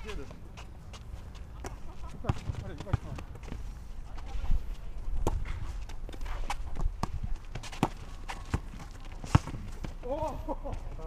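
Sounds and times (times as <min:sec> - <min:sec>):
footsteps on rubber court: 0:00.0 - 0:11.0
basketball bouncing: 0:06.5 - 0:10.0.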